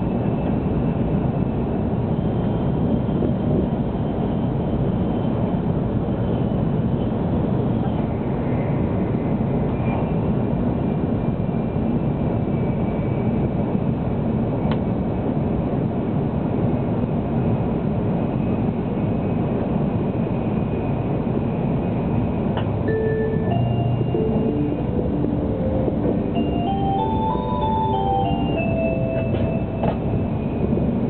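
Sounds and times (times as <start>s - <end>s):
train cabin rumble and rush: 0.0s - 31.0s
announcement chime: 22.9s - 30.4s.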